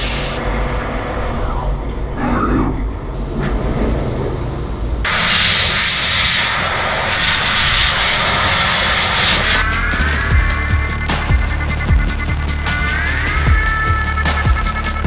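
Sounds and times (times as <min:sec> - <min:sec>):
loud steady hiss: 0:00.0 - 0:00.4, 0:05.0 - 0:14.2
low machine rumble: 0:00.0 - 0:05.1.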